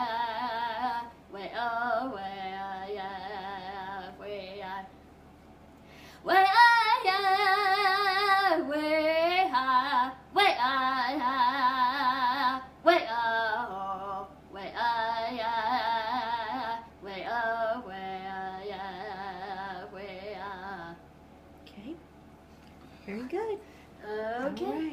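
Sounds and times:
woman singing ceremonial song: 0:23.2 - 0:24.9.

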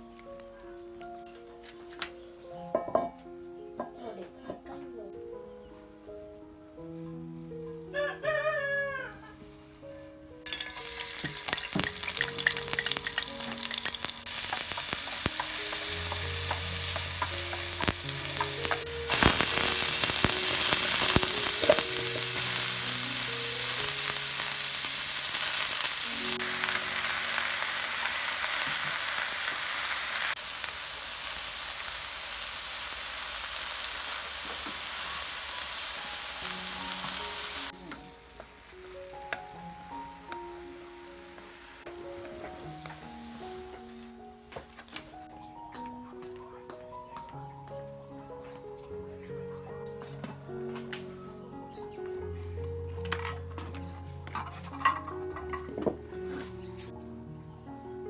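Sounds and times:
cabbage sizzling in frying pan: 0:10.5 - 0:44.1.

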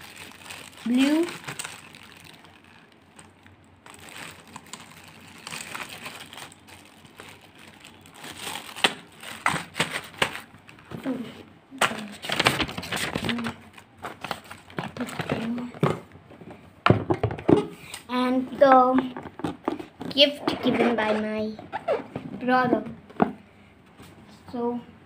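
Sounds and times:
plastic bags crinkling: 0:00.0 - 0:10.9, 0:11.8 - 0:15.7.

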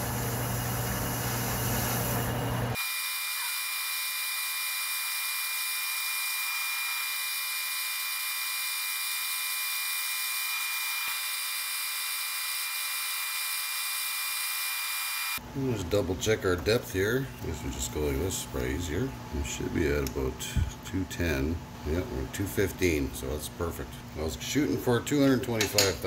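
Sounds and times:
metal lathe whine: 0:02.7 - 0:15.4.

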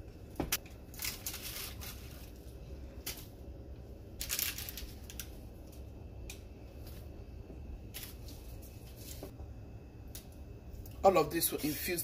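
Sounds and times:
low steady hum: 0:00.0 - 0:12.0
food handling rustles: 0:00.8 - 0:03.4.

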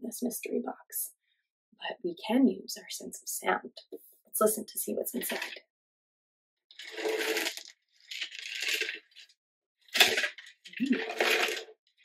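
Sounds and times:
seeds rattling in a box: 0:06.7 - 0:09.3, 0:09.9 - 0:11.7.

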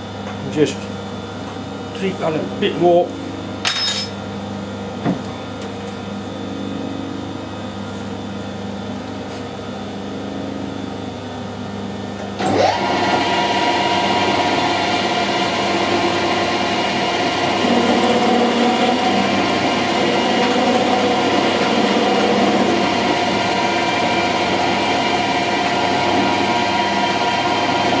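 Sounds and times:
metal lathe humming: 0:14.0 - 0:25.8.

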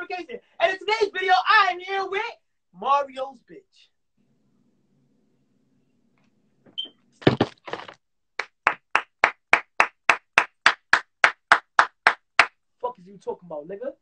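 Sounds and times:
sharp hand claps: 0:08.4 - 0:12.6.

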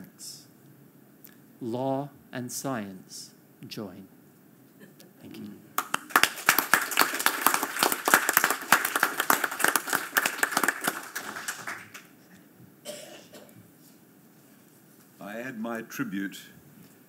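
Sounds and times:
audience applauding: 0:05.8 - 0:12.2.

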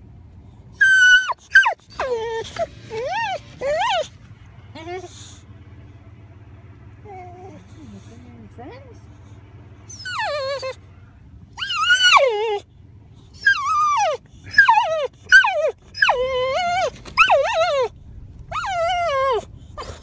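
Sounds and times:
dog whining: 0:00.8 - 0:05.4, 0:07.0 - 0:08.0, 0:09.9 - 0:10.8, 0:11.6 - 0:12.7, 0:13.3 - 0:20.0.

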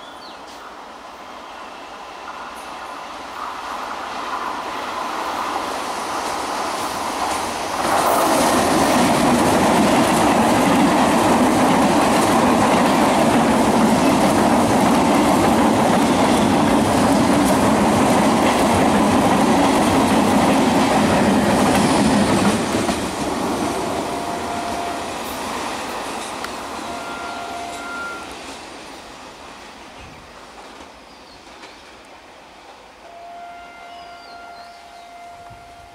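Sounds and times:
train wheels on rails: 0:00.0 - 0:33.1.

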